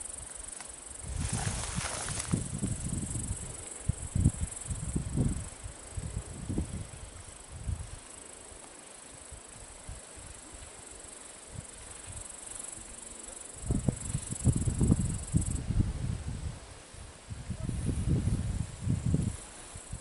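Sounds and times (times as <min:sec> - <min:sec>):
insects chirring: 0:00.0 - 0:15.9
wind buffeting microphone: 0:01.0 - 0:08.0, 0:13.6 - 0:20.0.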